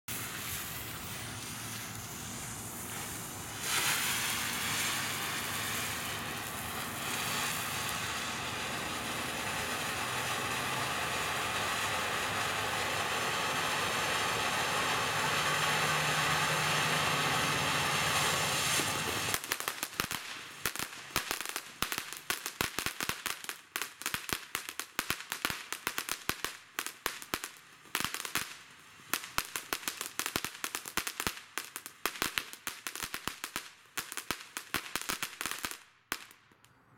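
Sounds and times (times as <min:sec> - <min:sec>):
firework fountain spraying hiss: 0:00.1 - 0:36.4
firework crackling pops: 0:00.1 - 0:36.8.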